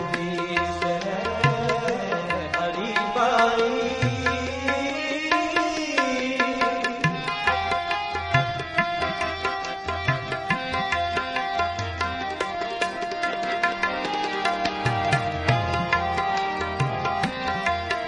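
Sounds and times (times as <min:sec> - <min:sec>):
plucked string melody: 0:00.0 - 0:18.0
tabla strokes: 0:00.0 - 0:18.0.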